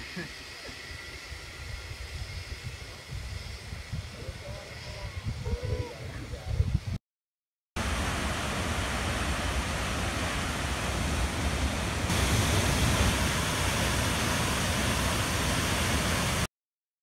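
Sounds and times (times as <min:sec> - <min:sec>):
waterfall pouring into pool: 0:07.8 - 0:16.5.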